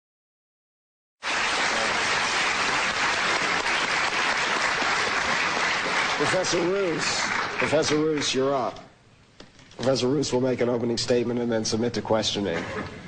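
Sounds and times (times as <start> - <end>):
audience applauding: 1.2 - 8.5.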